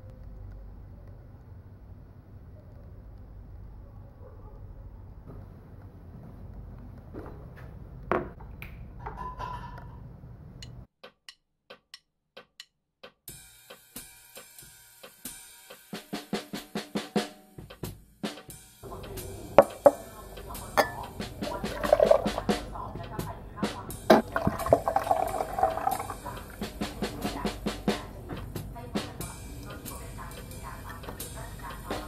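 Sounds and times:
hip-hop beat with drums: 0:11.1 - 0:24.2, 0:26.2 - 0:32.0.

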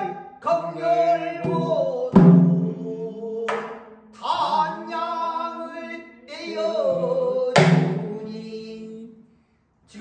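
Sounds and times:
man singing in a bending voice: 0:00.0 - 0:10.0
loud sharp knock: 0:07.6 - 0:08.1.

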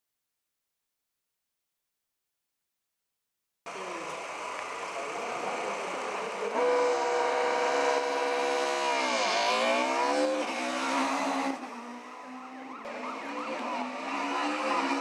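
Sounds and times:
rally car engine revving: 0:03.7 - 0:15.0.

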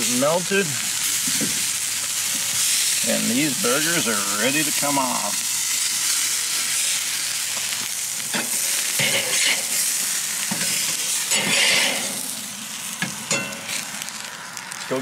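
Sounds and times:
burgers sizzling on grill: 0:00.0 - 0:15.0
metal spatula scraping grate: 0:08.4 - 0:09.9, 0:10.6 - 0:12.3.

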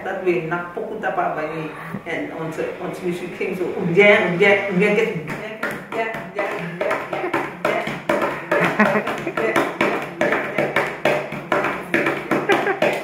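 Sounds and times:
hands beating on wooden desk: 0:05.6 - 0:13.0.

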